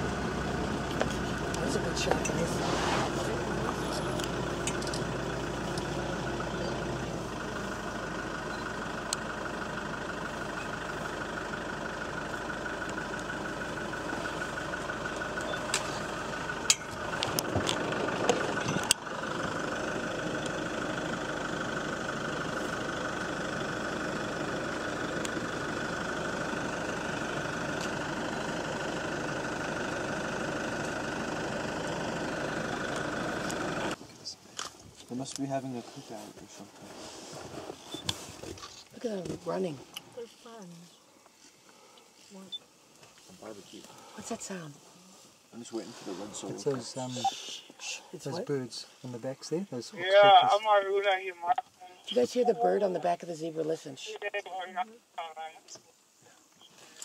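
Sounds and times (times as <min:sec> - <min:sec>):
truck engine running: 0:00.0 - 0:34.9.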